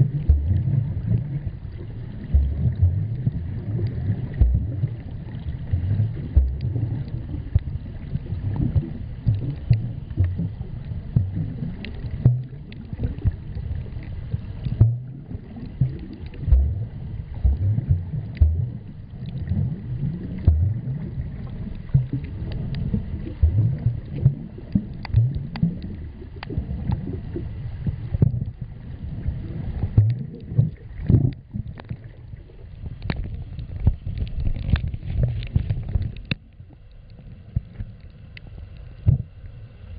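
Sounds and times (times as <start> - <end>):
water sloshing against camera: 0.0 - 39.6
muffled underwater rumbling: 0.0 - 39.9.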